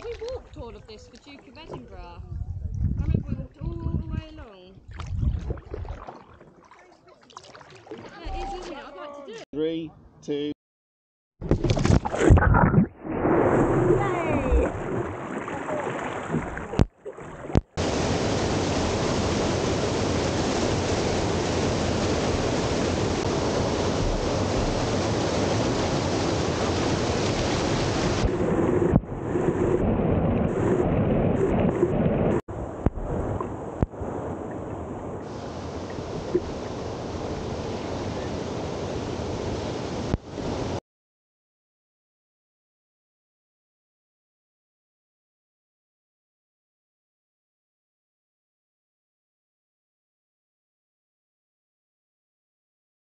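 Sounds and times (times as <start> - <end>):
whitewater rushing and splashing: 13.7 - 32.4, 35.2 - 40.8.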